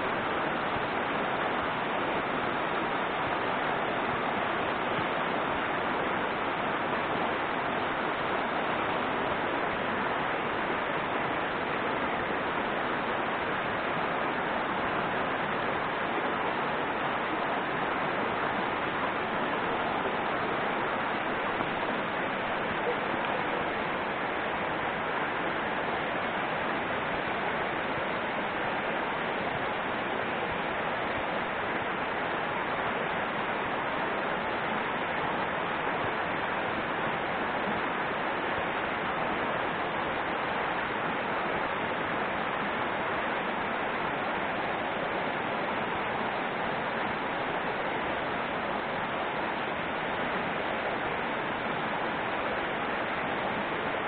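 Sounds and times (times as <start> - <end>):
river rushing over rocks: 0.0 - 54.0.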